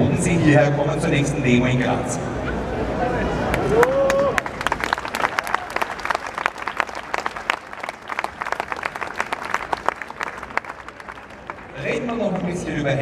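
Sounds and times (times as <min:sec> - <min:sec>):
crowd applauding: 0:03.5 - 0:12.6.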